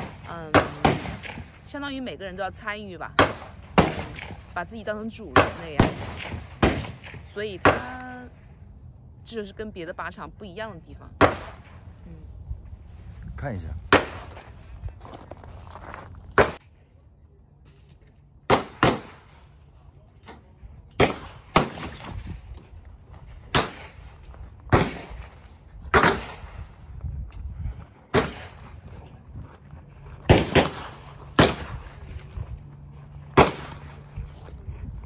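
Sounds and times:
gunshots with echo: 0:00.0 - 0:01.7, 0:13.9 - 0:14.4.

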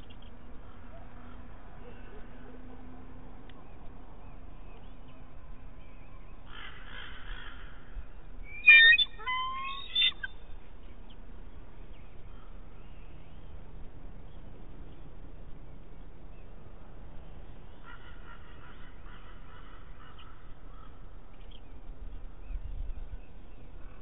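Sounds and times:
bird chattering call notes: 0:08.5 - 0:10.3.

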